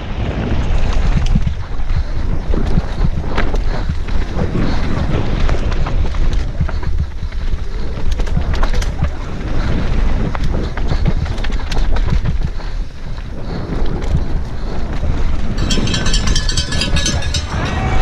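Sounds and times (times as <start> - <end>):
wind buffeting on microphone: 0.0 - 18.0
bike clattering over bumps: 15.5 - 18.0.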